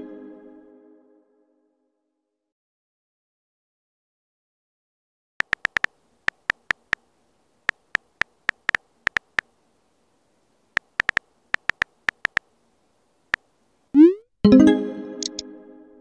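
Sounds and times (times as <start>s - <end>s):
phone keyboard key clicks: 5.4s - 7.0s, 7.7s - 9.5s, 10.8s - 12.5s.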